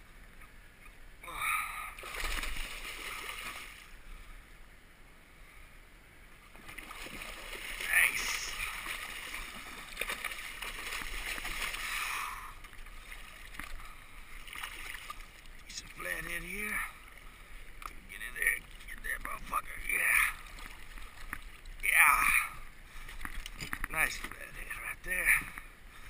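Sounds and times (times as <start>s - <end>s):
fish thrashing and splashing: 1.9s - 3.8s, 6.5s - 16.1s.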